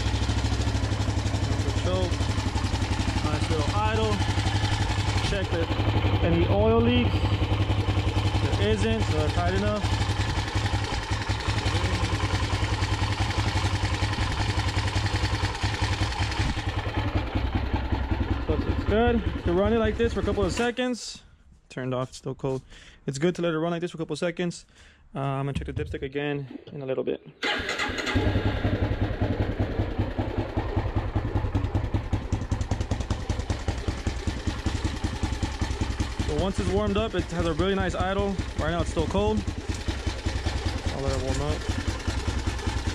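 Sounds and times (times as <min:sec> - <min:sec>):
engine idling: 0:00.0 - 0:20.7, 0:27.4 - 0:42.9.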